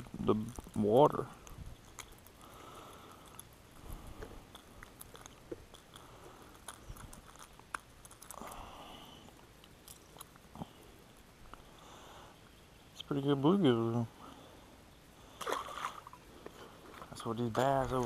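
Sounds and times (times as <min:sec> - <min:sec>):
faint clicks and rustles: 0:00.0 - 0:13.1.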